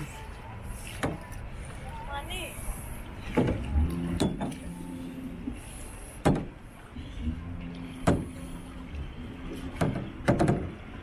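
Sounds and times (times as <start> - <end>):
low mechanical hum: 0.0 - 11.0
sharp knocks: 6.2 - 6.5, 9.8 - 10.8.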